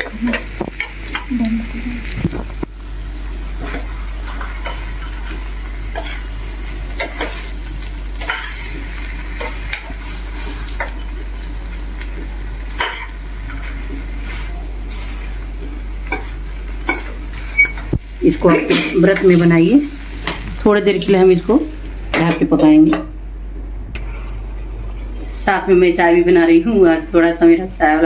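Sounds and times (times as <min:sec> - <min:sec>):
food sizzling in pan: 0:00.0 - 0:22.1.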